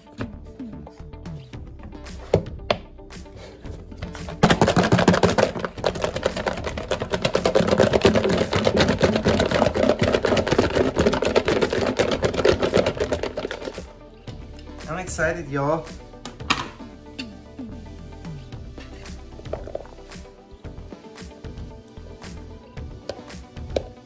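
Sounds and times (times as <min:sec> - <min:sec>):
food rattling in plastic container: 0:04.3 - 0:13.8.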